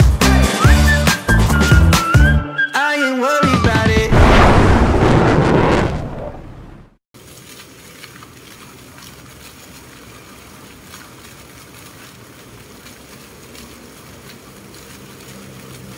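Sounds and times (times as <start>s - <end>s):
music: 0.0s - 4.1s
fountain jets splashing into basin: 7.2s - 15.9s.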